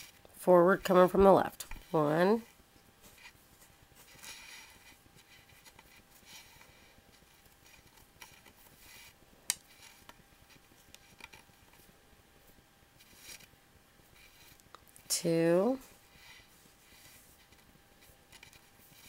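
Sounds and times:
strings rustling under fingers: 1.4s - 15.0s, 15.8s - 19.0s.

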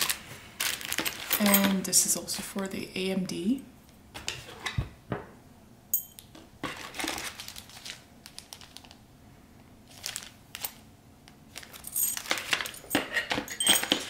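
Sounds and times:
plastic bag crinkling: 0.0s - 1.8s, 6.6s - 9.0s, 9.8s - 10.8s, 11.5s - 12.8s
metal parts clinking: 0.6s - 1.8s, 11.6s - 14.0s.

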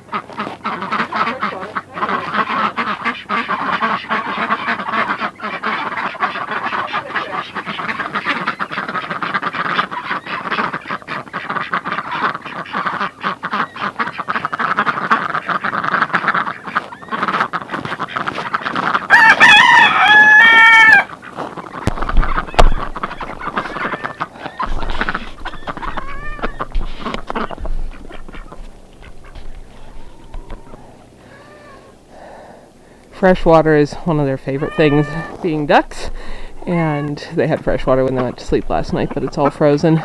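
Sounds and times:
ducks quacking: 0.0s - 40.0s
rooster crowing: 19.1s - 21.1s, 29.8s - 31.9s.

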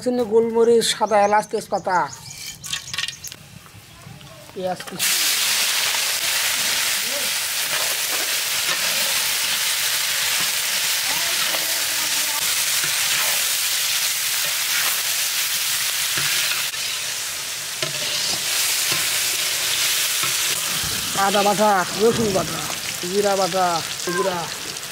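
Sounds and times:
metal spatula scraping wok: 2.2s - 3.2s, 7.6s - 21.4s
onions sizzling in hot oil: 4.5s - 24.9s.

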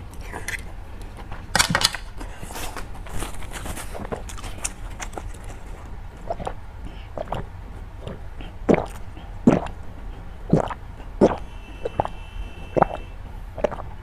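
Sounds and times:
gulping through a straw: 5.3s - 13.0s, 13.6s - 14.0s.

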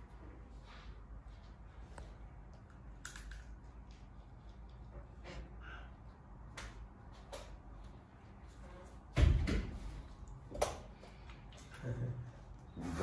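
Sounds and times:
heavy thud on wooden door: 9.2s - 9.8s.

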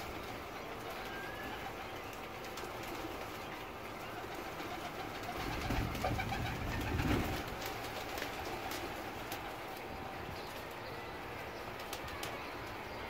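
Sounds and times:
pigeons cooing: 0.0s - 9.8s
pigeon wing flaps: 0.1s - 3.4s, 4.1s - 9.9s
pigeons scuffling: 4.1s - 10.7s.

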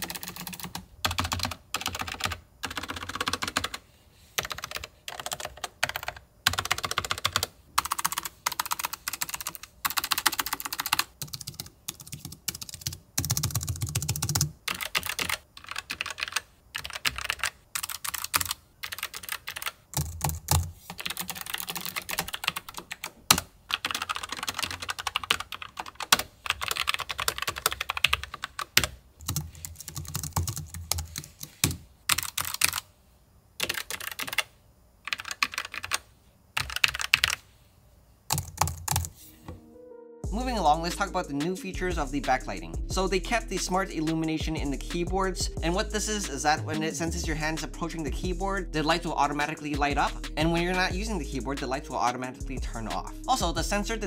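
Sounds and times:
mechanical keyboard typing: 0.0s - 3.8s, 4.4s - 32.9s, 33.6s - 37.4s, 38.3s - 39.1s.

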